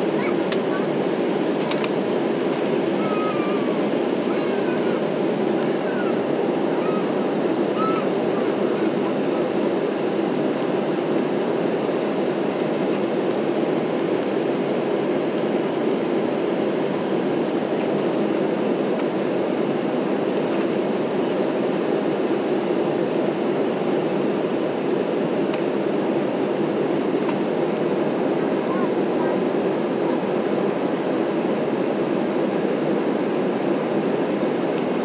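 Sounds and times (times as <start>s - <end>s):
jet engines rumbling: 0.0s - 35.0s
rushing airflow: 0.8s - 20.9s.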